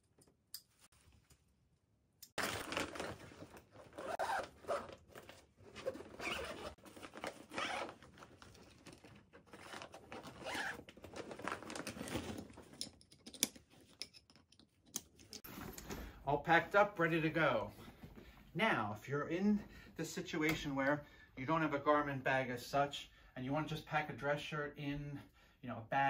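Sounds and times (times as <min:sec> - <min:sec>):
zipper being pulled: 0:03.8 - 0:05.0, 0:05.7 - 0:08.0, 0:09.5 - 0:10.9.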